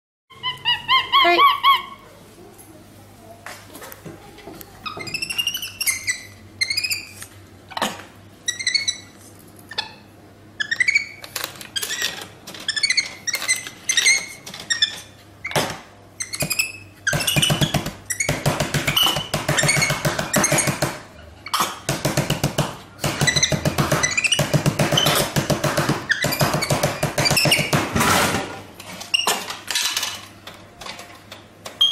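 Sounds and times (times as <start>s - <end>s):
monkey chattering calls: 0.3s - 2.0s
monkey squeaky chirps: 0.3s - 2.0s, 4.8s - 7.2s, 8.5s - 10.0s, 10.6s - 11.2s.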